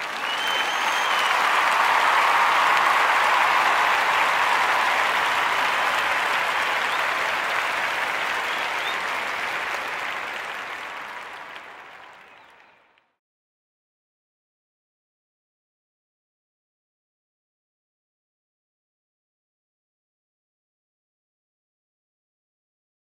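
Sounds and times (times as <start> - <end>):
crowd applause: 0.0 - 13.2.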